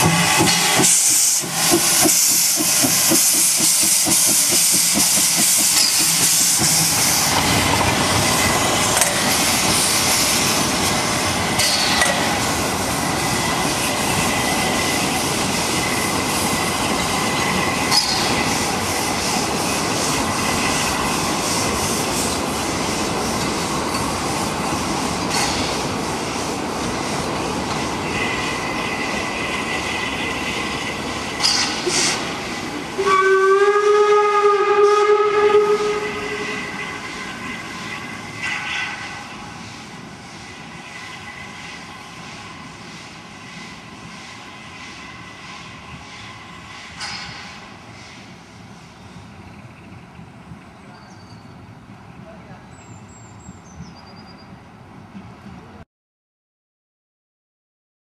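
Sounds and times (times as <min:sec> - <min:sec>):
train wheel clatter: 0:00.0 - 0:34.2, 0:35.8 - 0:48.3
steam locomotive hissing: 0:00.0 - 0:54.3.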